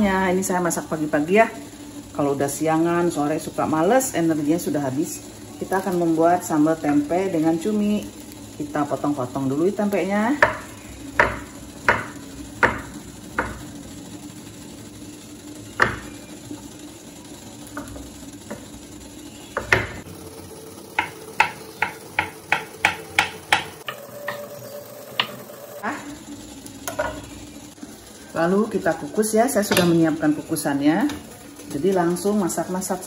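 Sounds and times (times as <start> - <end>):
knife chopping on wooden board: 10.4 - 13.6, 15.8 - 16.1, 21.0 - 24.4.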